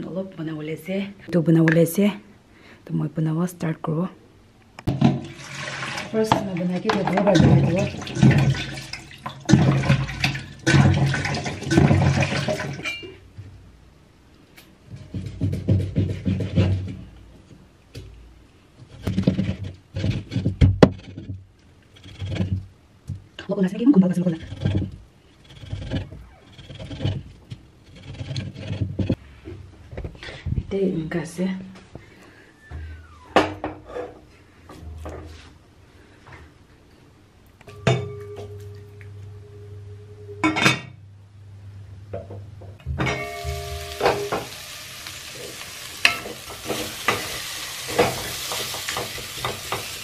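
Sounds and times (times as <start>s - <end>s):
metal pot clanking and ringing: 12.8s - 13.2s, 37.7s - 38.8s, 42.9s - 44.7s.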